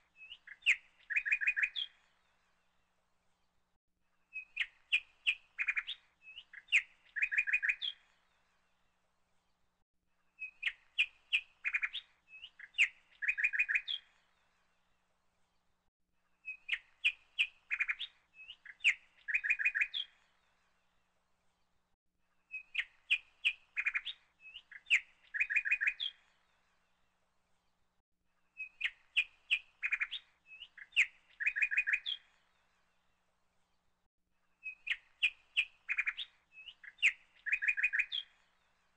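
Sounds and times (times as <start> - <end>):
bird chirps and trills: 0.2 - 2.4, 4.3 - 8.4, 10.4 - 14.5, 16.4 - 20.6, 22.5 - 26.7, 28.5 - 32.9, 34.6 - 38.9.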